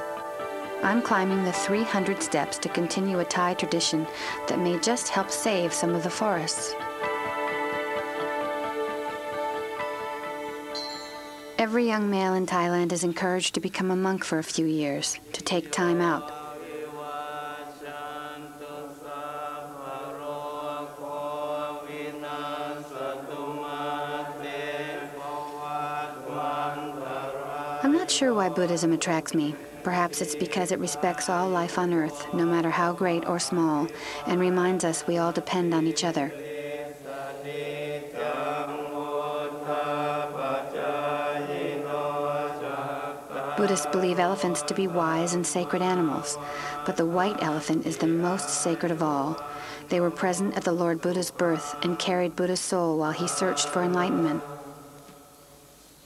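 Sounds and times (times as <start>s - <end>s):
monks chanting in unison: 15.7s - 50.6s, 51.4s - 52.2s, 53.1s - 55.3s.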